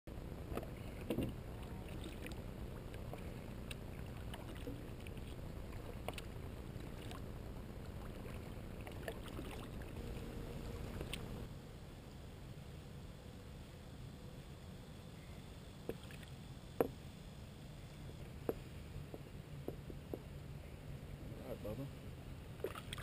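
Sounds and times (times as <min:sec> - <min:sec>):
steady low rumble: 0:00.1 - 0:23.0
paddle splashes and drips: 0:00.5 - 0:11.5, 0:22.6 - 0:23.0.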